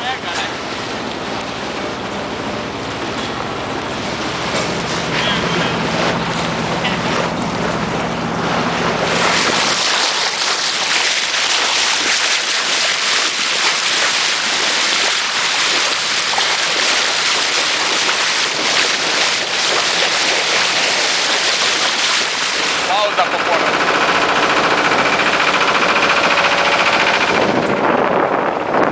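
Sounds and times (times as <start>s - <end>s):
bow wave splashing against hull: 0.0s - 28.1s
boat engine hum: 0.0s - 28.9s
wind on microphone: 8.8s - 22.9s, 24.9s - 28.9s.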